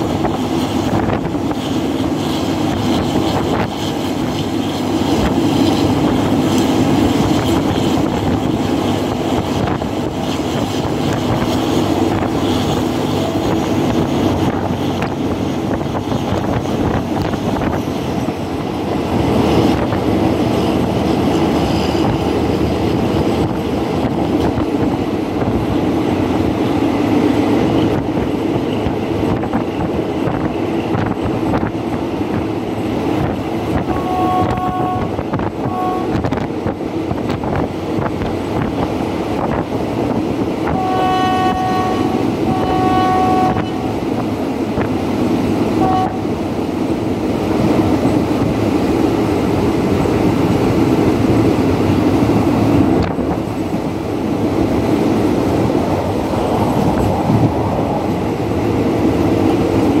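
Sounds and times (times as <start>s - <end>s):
train running at speed: 0.0s - 60.0s
two-note locomotive horn: 33.8s - 36.5s, 40.6s - 44.0s, 45.8s - 46.4s.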